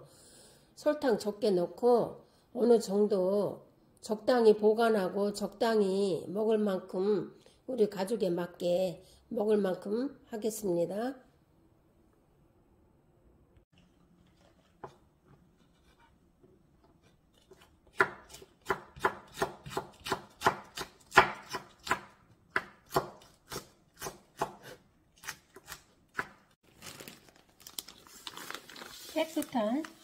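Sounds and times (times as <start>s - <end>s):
knife chopping on wooden board: 17.0s - 26.4s
soft rustling: 27.8s - 30.0s.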